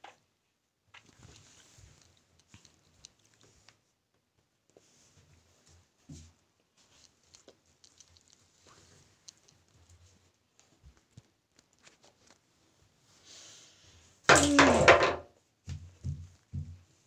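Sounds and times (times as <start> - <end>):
faint small clicks and taps: 0.9 - 5.0, 6.0 - 12.5.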